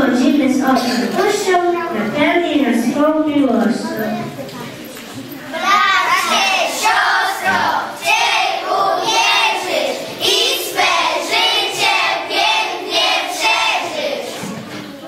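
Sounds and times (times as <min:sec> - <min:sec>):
children singing together: 0:05.4 - 0:14.8.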